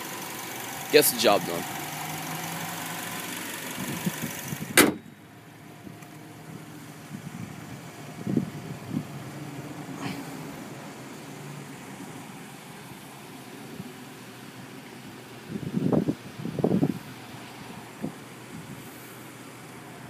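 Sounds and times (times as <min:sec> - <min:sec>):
car engine idling: 0:00.0 - 0:20.0
sharp knock: 0:04.8 - 0:05.0.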